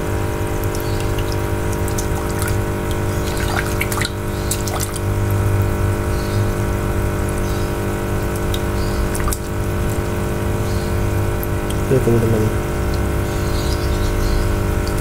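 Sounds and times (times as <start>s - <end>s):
electric water pump humming: 0.0s - 15.0s
water splashes and drips: 0.4s - 5.9s, 7.0s - 10.4s.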